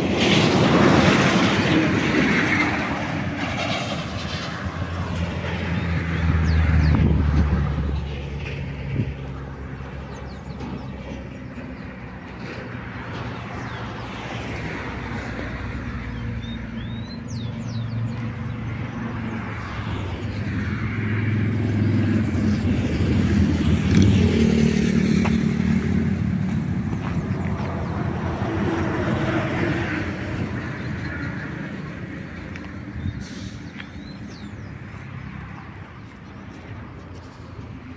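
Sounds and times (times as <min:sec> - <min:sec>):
vehicle engine running: 0:16.0 - 0:29.2.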